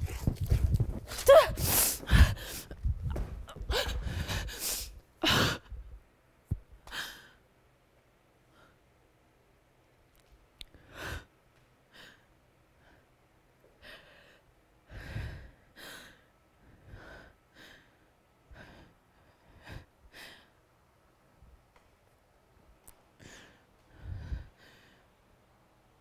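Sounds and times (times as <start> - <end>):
breath puffs on microphone: 0.0 - 3.1
woman breathing and sighing: 0.0 - 6.0, 13.8 - 20.6, 23.2 - 25.2.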